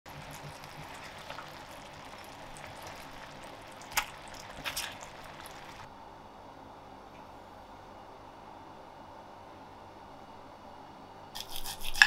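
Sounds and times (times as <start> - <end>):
sauce simmering and bubbling: 0.0 - 5.9.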